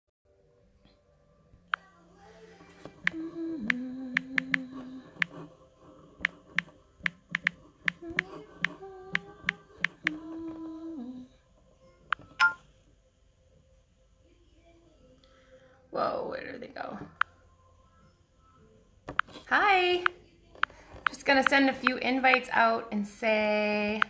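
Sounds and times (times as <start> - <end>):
woman humming: 2.9 - 5.5, 7.9 - 11.4
sharp clicks keeping time: 3.0 - 5.4, 6.2 - 10.3.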